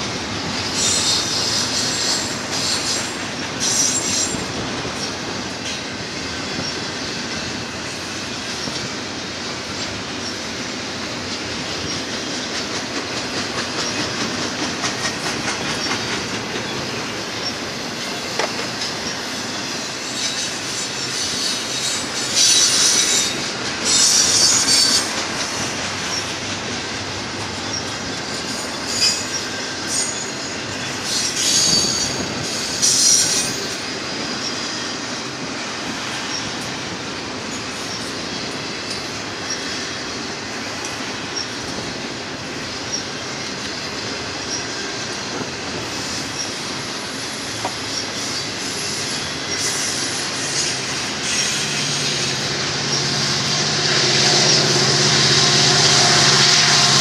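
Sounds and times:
train wheels rumbling on rails: 0:00.0 - 0:57.0
clicking over rail joints: 0:11.2 - 0:19.2, 0:42.9 - 0:51.7
high-pitched wheel squeals: 0:19.5 - 0:25.2, 0:27.7 - 0:33.9.

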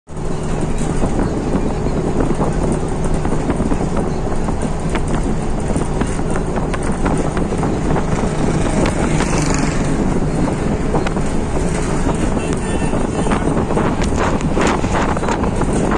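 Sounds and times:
engine and road noise: 0:00.0 - 0:15.9.

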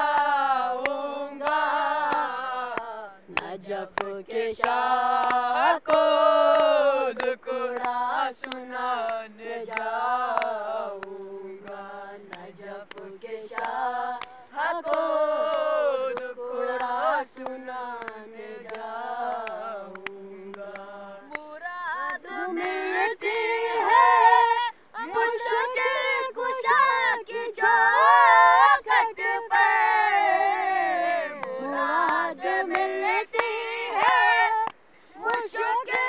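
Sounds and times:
boys chanting unaccompanied: 0:00.0 - 0:36.0.

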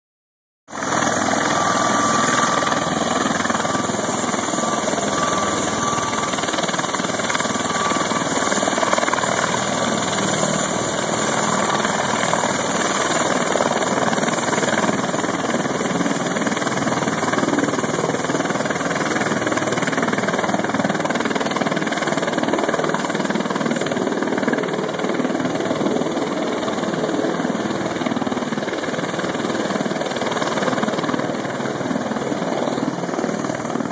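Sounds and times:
aircraft engines droning: 0:00.7 - 0:33.9.

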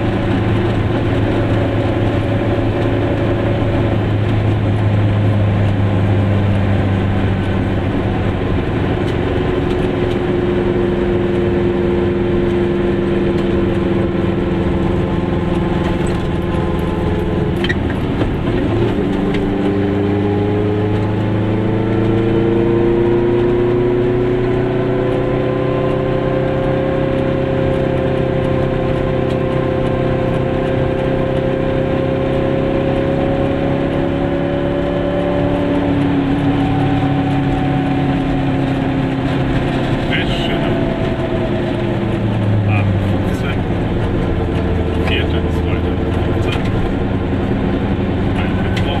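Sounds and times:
small two-stroke car engine running: 0:25.8 - 0:49.0.

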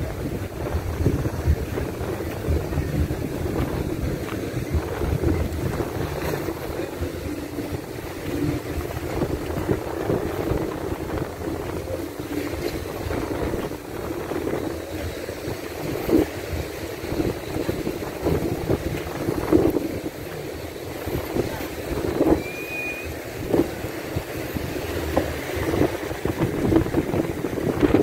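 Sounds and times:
choppy sea waves: 0:00.0 - 0:28.0
wind buffeting microphone: 0:00.0 - 0:28.0.

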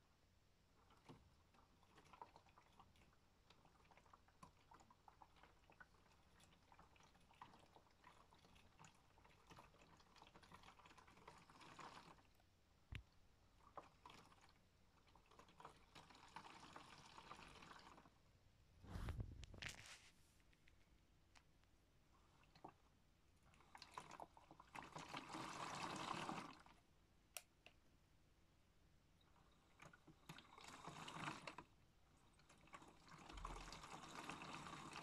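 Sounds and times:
water sloshing in washing machine: 0:00.8 - 0:12.4, 0:13.6 - 0:18.1, 0:23.4 - 0:26.7, 0:29.3 - 0:35.0.

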